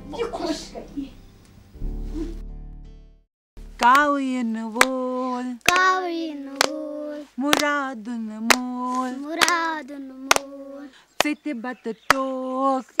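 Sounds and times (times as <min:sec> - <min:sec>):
hands clapping: 0:03.8 - 0:04.1, 0:05.6 - 0:06.0, 0:06.6 - 0:06.8, 0:07.5 - 0:07.8, 0:08.5 - 0:08.7, 0:09.4 - 0:09.6, 0:10.3 - 0:10.5
woman and children singing: 0:03.8 - 0:13.0.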